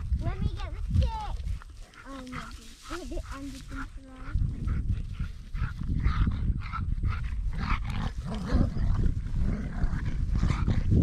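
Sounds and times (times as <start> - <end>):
dogs growling in play: 1.8 - 11.0.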